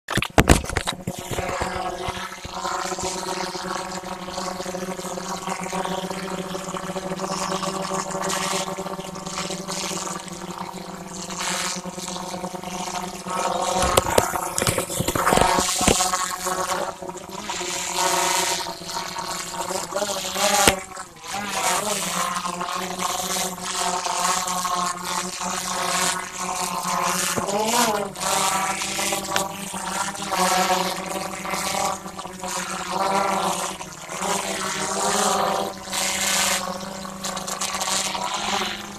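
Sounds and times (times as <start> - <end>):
drone propellers whining: 0.3 - 17.9.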